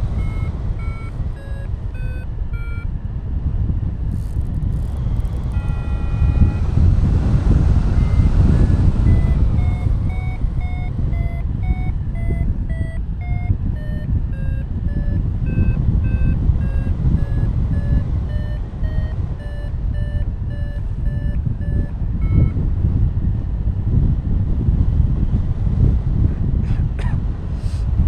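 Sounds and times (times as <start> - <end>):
variometer beeping: 0.0 - 3.1, 4.0 - 23.0
wind on microphone: 0.0 - 28.0.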